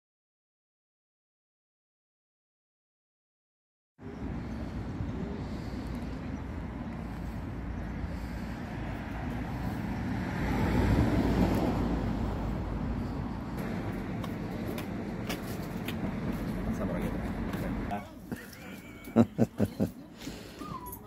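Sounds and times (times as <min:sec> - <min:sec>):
vehicle passing by: 0:04.0 - 0:18.0
low outdoor rumble: 0:04.0 - 0:20.9.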